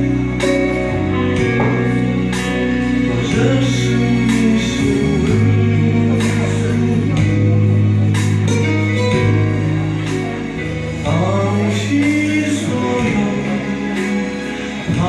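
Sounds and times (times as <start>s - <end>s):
karaoke backing track: 0.0s - 15.0s
man singing into microphone: 3.0s - 8.0s, 11.0s - 15.0s.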